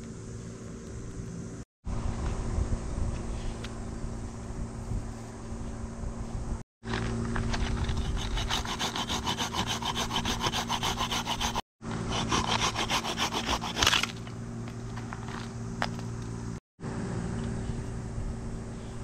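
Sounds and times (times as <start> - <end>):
hand saw cutting wood: 7.5 - 14.2.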